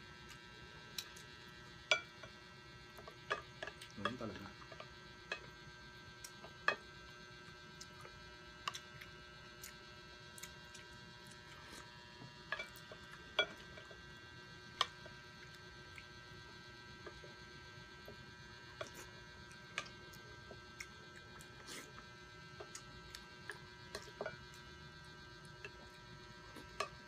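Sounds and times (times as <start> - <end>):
faint electrical hum: 0.0 - 27.0.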